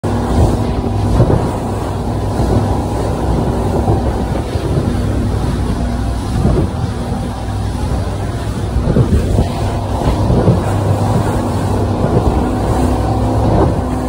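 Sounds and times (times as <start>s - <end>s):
outboard engines droning: 0.0s - 14.0s
water rushing past hull: 0.0s - 14.0s
wind rushing over microphone: 0.0s - 14.0s.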